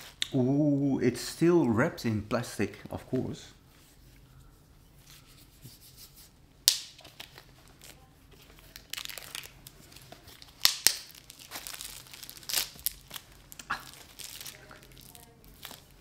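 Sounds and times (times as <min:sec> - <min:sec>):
plastic wrapping crinkling and tearing: 0:06.7 - 0:16.0.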